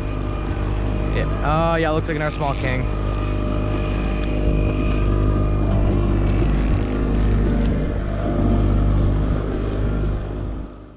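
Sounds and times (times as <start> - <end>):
boat motor running: 0.0 - 10.9.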